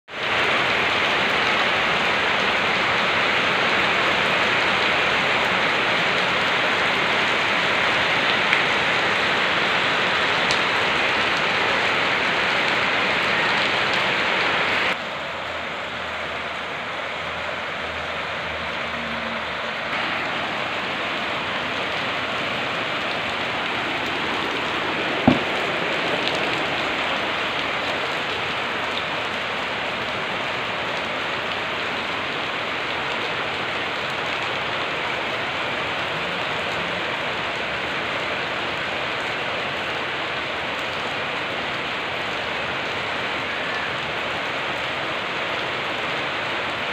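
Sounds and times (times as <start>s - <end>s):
rain on paving and puddles: 0.1s - 46.9s
sharp tap: 25.3s - 25.5s.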